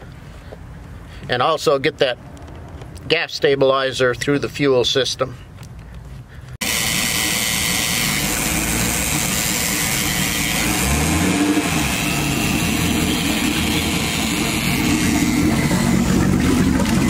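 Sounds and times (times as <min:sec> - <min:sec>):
boat engine idling: 0:06.6 - 0:17.0.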